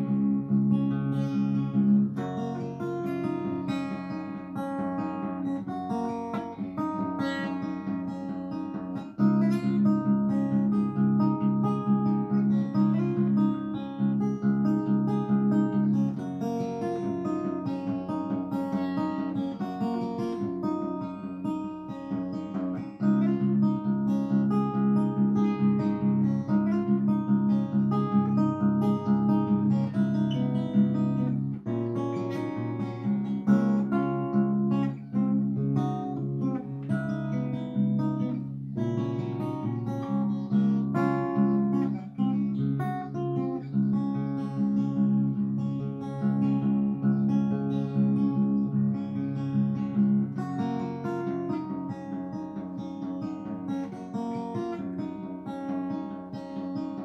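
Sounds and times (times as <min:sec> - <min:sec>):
acoustic guitar picking: 0:00.0 - 0:57.0.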